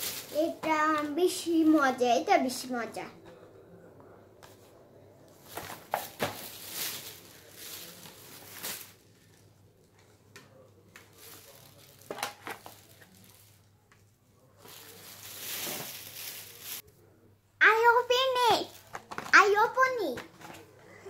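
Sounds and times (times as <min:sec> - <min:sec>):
plastic bags rustling: 0:00.0 - 0:02.1, 0:05.3 - 0:09.6, 0:11.0 - 0:13.8, 0:14.4 - 0:16.8.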